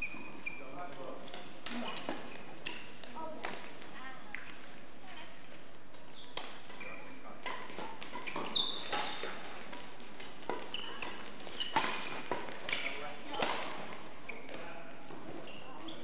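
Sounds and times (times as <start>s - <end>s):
shoes squeaking on court: 0.0s - 16.0s
rackets striking shuttlecock: 0.9s - 3.8s, 6.0s - 14.6s.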